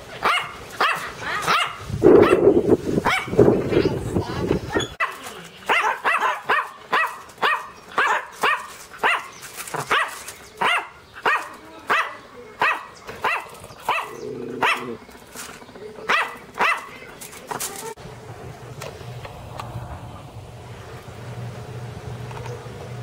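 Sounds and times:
small dog barking: 0:00.2 - 0:02.4, 0:03.0 - 0:03.4, 0:04.7 - 0:15.0, 0:16.1 - 0:17.0.

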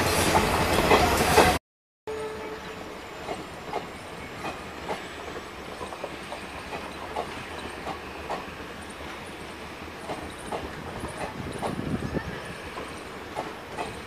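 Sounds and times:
low train rumble: 0:00.0 - 0:14.0
train wheels clacking on rail joints: 0:03.2 - 0:14.0.

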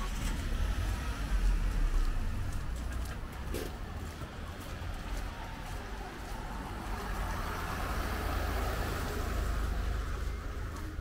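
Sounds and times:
car driving past: 0:05.3 - 0:10.6.

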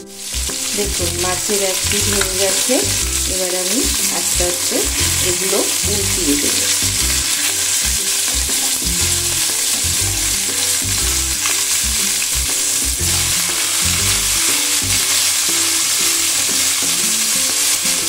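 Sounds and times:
fish sizzling in hot oil: 0:00.0 - 0:18.0.

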